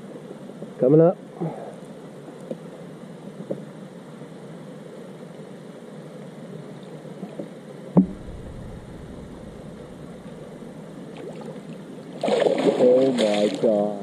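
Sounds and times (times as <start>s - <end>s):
sharp knock: 8.0s - 10.9s
low rumble: 8.0s - 11.2s
steady hiss: 8.0s - 11.2s.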